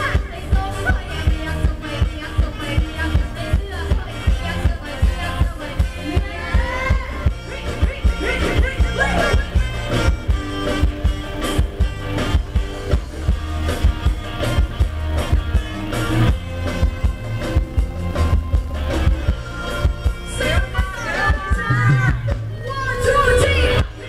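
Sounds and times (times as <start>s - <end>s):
heavy bass drum beat: 0.0s - 24.0s
live band dance music over pa: 0.0s - 24.0s.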